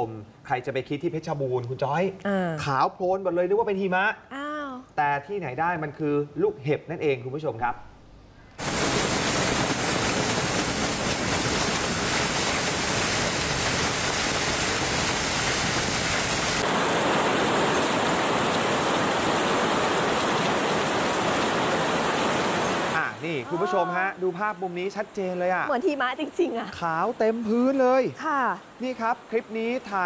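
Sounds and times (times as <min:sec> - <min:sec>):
hail and heavy rain pouring: 0:08.6 - 0:26.4.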